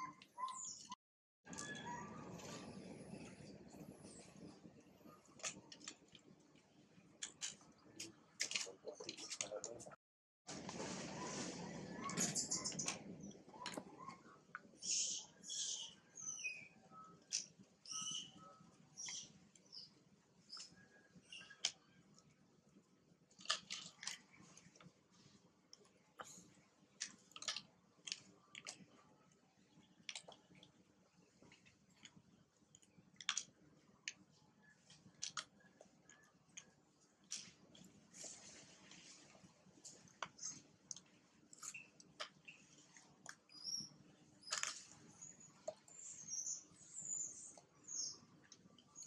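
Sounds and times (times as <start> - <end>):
monkeys chewing and crunching food: 1.5 - 9.8, 10.5 - 49.0.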